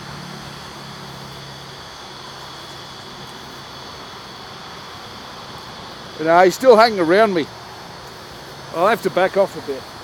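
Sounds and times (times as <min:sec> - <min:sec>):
steady background hiss: 0:00.0 - 0:10.0.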